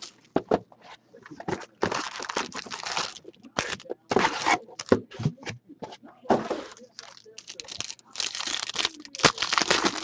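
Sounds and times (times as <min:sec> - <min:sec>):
cardboard and foil rustling: 0:01.4 - 0:05.0, 0:06.5 - 0:10.0.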